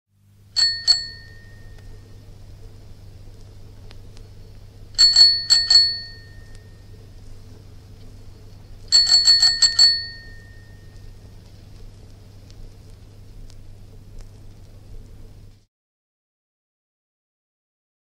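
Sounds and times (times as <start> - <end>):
bicycle bell dings: 0.6 - 1.8, 5.0 - 6.8, 8.9 - 10.9.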